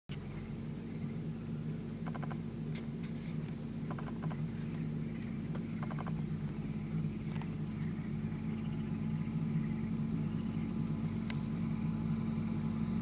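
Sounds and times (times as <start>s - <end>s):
low motor hum: 0.1s - 13.0s.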